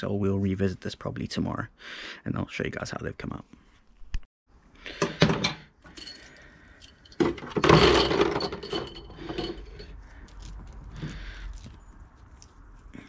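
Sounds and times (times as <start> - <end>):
metal hardware clinking and rattling: 5.4 - 12.0.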